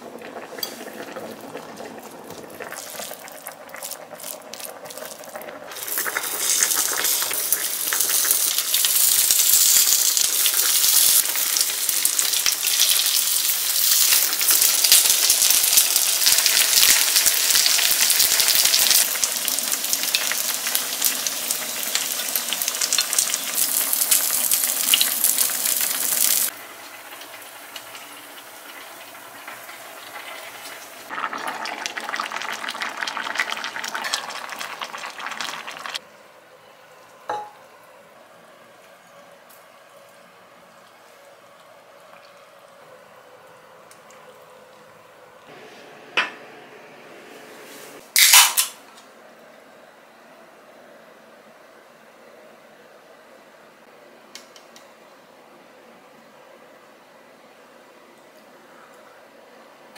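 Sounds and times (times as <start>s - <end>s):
batter sizzling in hot oil: 0.6s - 36.0s.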